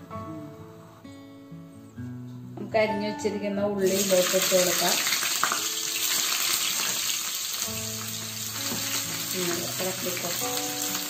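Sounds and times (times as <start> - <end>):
shallots sizzling in oil: 3.8 - 11.0.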